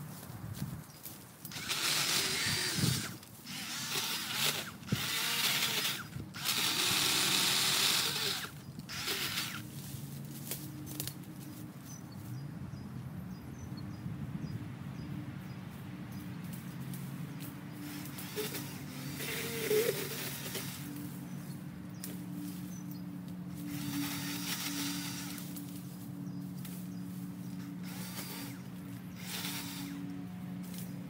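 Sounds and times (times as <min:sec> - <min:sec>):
low steady hum: 0:00.0 - 0:31.0
electric chainsaw cutting brush: 0:01.4 - 0:09.9, 0:16.9 - 0:21.3, 0:22.0 - 0:31.0.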